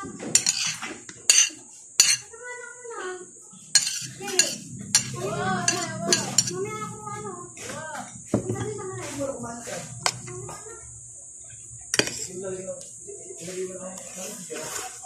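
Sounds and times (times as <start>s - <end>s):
spoon scraping plates: 0.0s - 2.4s, 3.5s - 7.0s, 7.6s - 12.6s
spoon clinking on plate: 0.4s - 2.2s, 3.7s - 6.5s.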